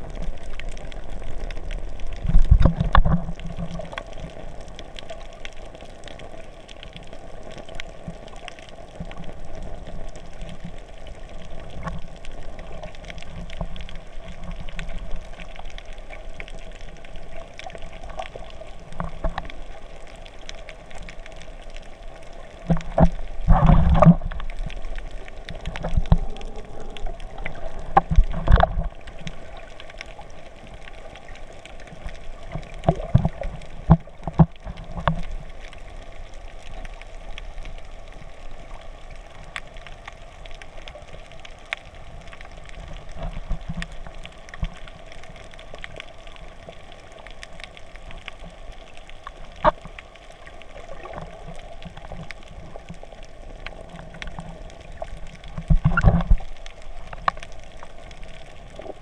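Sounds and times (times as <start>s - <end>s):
muffled underwater wash: 0.0s - 59.0s
sharp underwater clicks: 0.1s - 35.9s, 39.4s - 59.0s.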